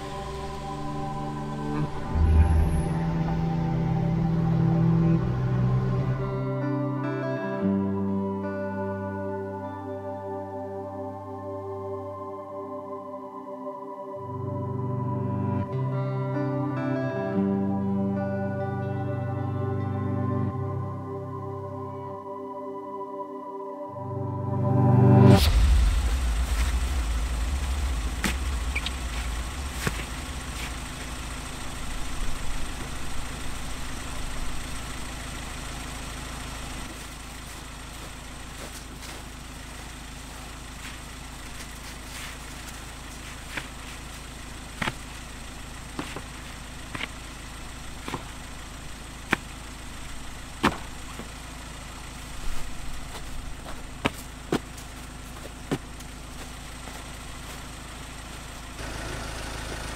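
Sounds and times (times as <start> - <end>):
car engine idling: 0.0 - 7.1, 25.2 - 59.9.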